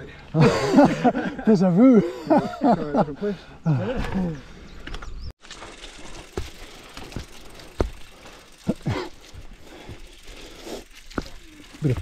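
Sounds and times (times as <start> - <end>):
bicycle freehub ratchet ticking: 5.5 - 12.0
sharp knocks from bike: 6.3 - 8.1.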